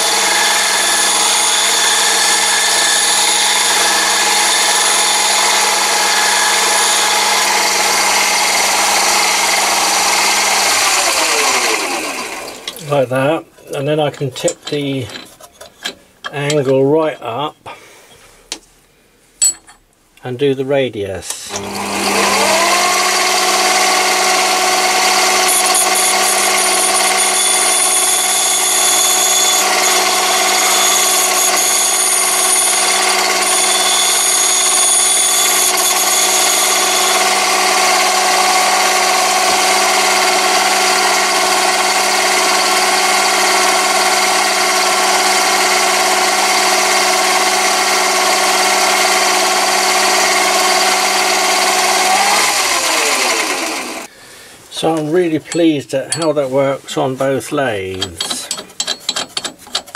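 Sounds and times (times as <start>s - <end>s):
high whine of tool on wheel: 0.0s - 12.8s, 21.5s - 54.1s
lathe motor humming: 0.0s - 12.8s, 21.5s - 54.1s.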